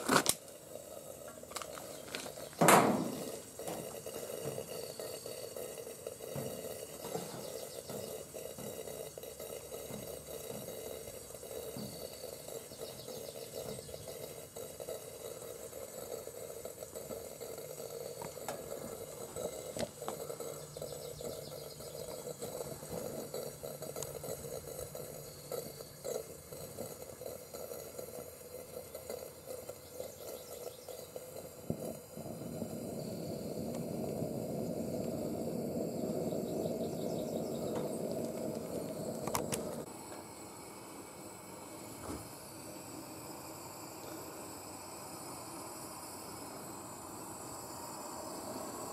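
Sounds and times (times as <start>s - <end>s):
gas lantern hissing: 0.0s - 48.9s.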